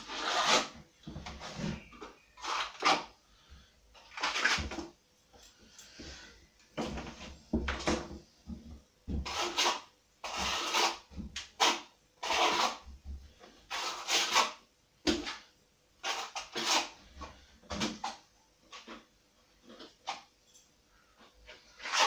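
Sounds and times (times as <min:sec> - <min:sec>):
trowel scraping plaster: 0:00.0 - 0:03.2, 0:04.0 - 0:04.8, 0:09.2 - 0:12.9, 0:13.7 - 0:17.0, 0:21.5 - 0:22.0.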